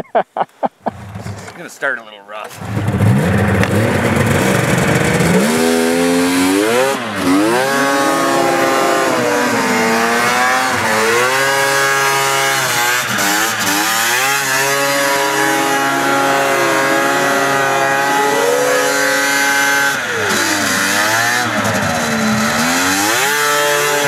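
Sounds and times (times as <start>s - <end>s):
snowmobile engine revving: 0.8s - 24.0s.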